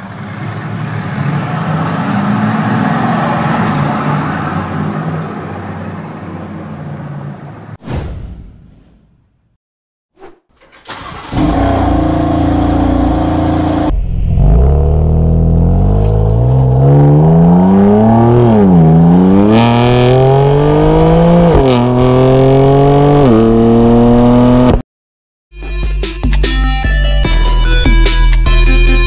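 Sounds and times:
car engine accelerating: 10.8s - 24.8s.

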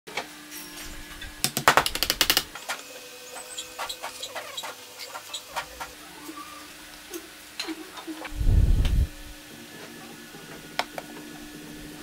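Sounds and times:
sharp clicks and knocks: 1.4s - 2.5s.

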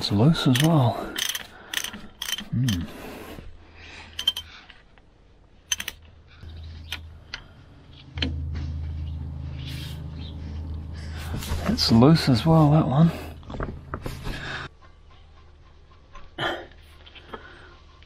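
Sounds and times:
spanner clinking on nuts: 0.3s - 2.8s, 4.1s - 4.5s, 5.6s - 6.1s
low steady hum: 5.8s - 14.7s.

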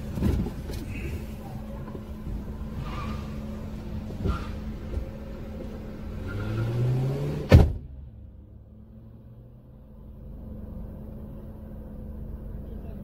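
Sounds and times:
car engine hum: 0.0s - 13.0s
car window thunk shut: 7.4s - 7.9s.

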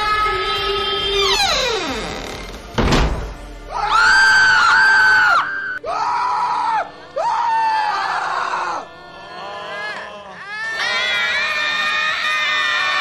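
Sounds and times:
high-pitched screams: 3.7s - 13.0s.

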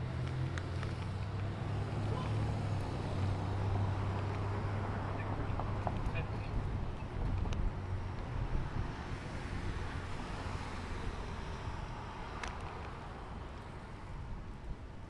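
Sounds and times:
car passing: 0.0s - 14.1s
wind rumble on microphone: 5.4s - 10.4s.

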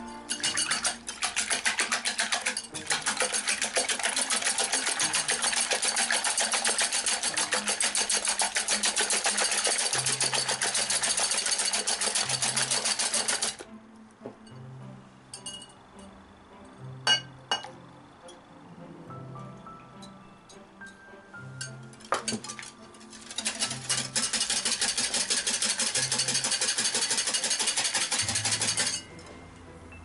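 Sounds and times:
whisk rattling in glass bowl: 0.3s - 13.6s, 22.0s - 29.1s.

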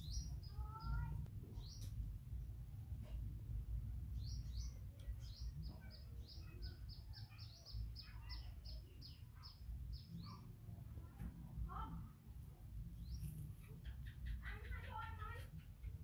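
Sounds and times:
bird chirping: 0.0s - 2.0s, 4.0s - 10.6s, 12.8s - 16.0s.

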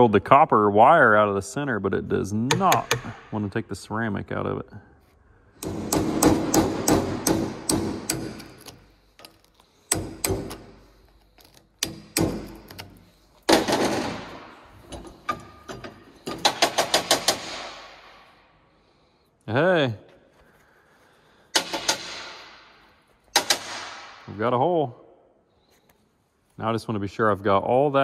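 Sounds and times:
hammer tapping on metal: 2.5s - 3.2s.

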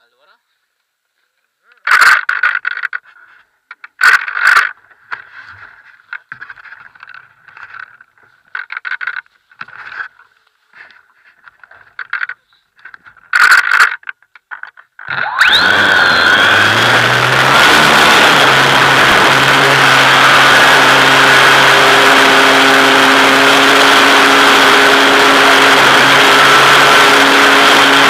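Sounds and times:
scraping handling noise: 1.8s - 15.0s
propeller motor whine: 15.1s - 28.0s.

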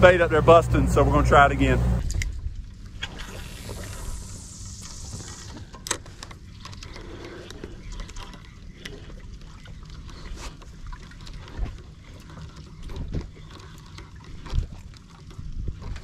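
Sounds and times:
fishing line hissing out: 3.0s - 5.6s.

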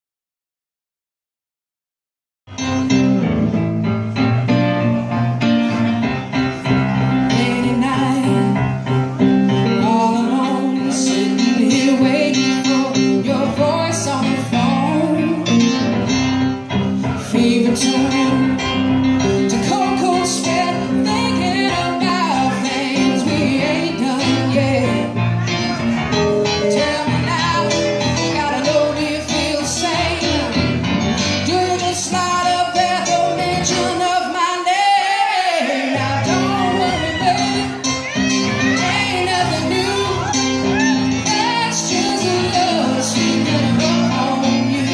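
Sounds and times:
electric guitar: 2.5s - 34.0s, 36.0s - 44.9s
keyboard: 2.5s - 44.9s
woman singing: 7.2s - 8.8s, 9.5s - 16.1s, 17.2s - 25.3s, 26.4s - 44.9s.

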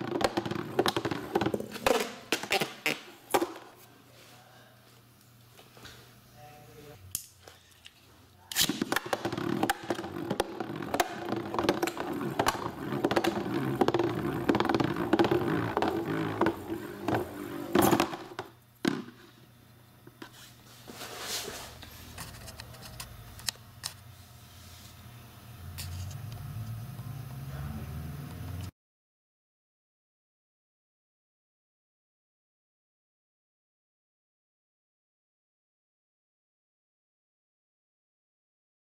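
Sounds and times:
spinning top rattling and scraping: 0.0s - 3.0s, 8.6s - 18.5s.

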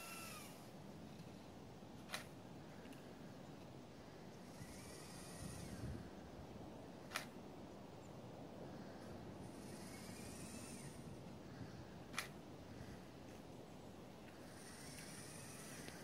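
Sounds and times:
small motors whirring: 0.0s - 0.7s, 4.5s - 6.0s, 9.6s - 11.0s, 14.6s - 16.0s.

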